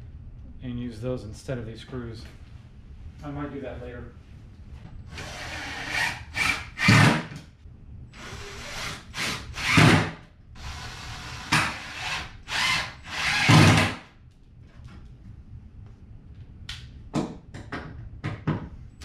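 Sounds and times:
cordless drill driving screws: 8.2 - 14.0.

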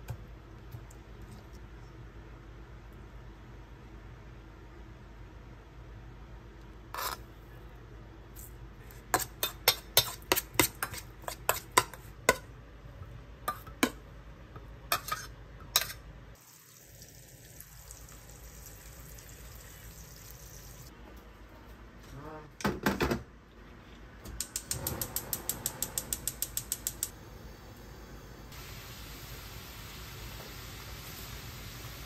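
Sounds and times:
metal spoon scraping a steel bowl: 7.0 - 7.2, 14.9 - 16.0.

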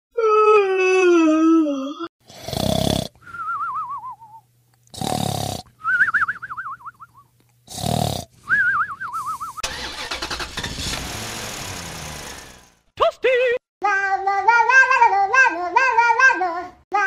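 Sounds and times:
cartoon snoring: 2.2 - 3.2, 4.9 - 5.7, 7.7 - 8.3.

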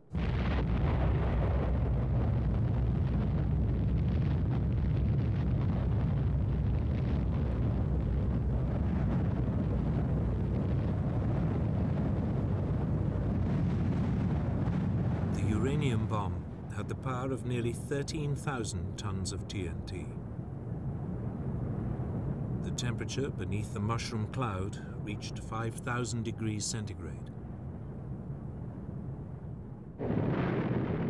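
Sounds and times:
deep rumbling explosion: 0.0 - 17.0, 30.0 - 31.0.

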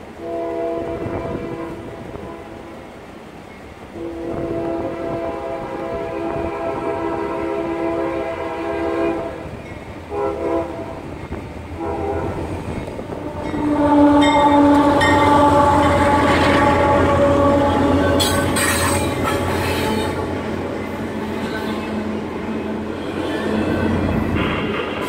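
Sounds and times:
locomotive horn blasts: 0.0 - 2.9, 3.9 - 24.5
train wheels clattering and squealing: 9.5 - 10.0, 18.0 - 25.0.

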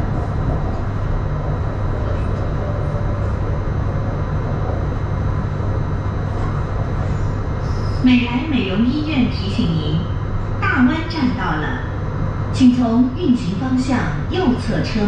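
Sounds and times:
metro train wheels rumbling: 0.0 - 15.0.

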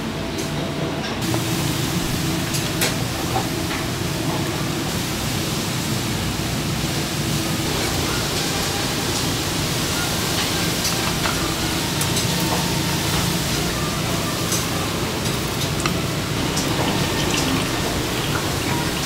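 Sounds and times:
kitchen rushing noise: 16.2 - 19.0.

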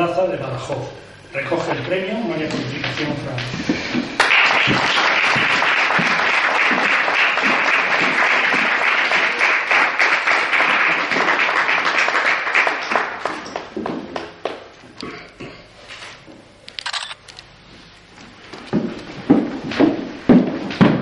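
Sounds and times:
audience applauding: 4.2 - 14.6.

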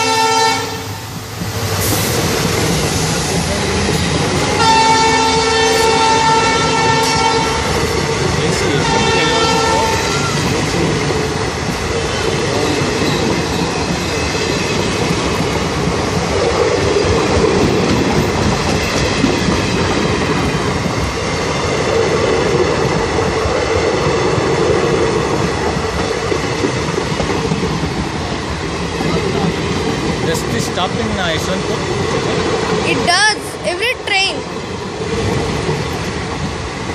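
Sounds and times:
diesel locomotive horn: 0.0 - 1.0, 4.5 - 7.9, 8.6 - 10.5
train wheels clattering on track: 0.0 - 33.1, 33.8 - 36.9.

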